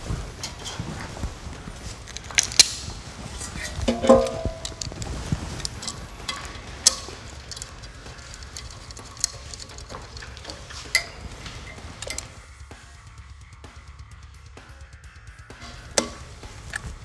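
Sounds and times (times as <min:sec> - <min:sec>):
low steady hum: 0:00.0 - 0:17.0
metallic handling clicks and knocks: 0:02.0 - 0:12.4, 0:15.6 - 0:17.0.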